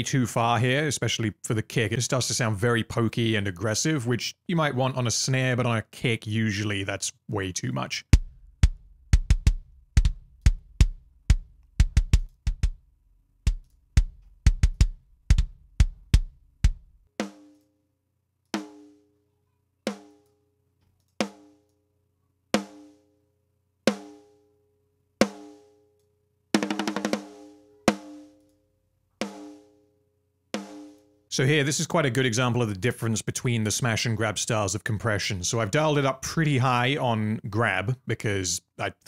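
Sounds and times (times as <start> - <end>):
deep kick drum hits: 8.2 - 12.8.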